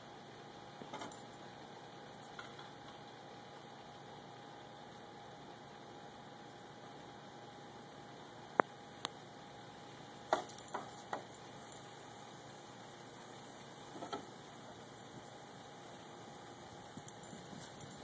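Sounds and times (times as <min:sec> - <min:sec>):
dog collar tags clinking: 0:10.4 - 0:11.8, 0:17.0 - 0:18.0.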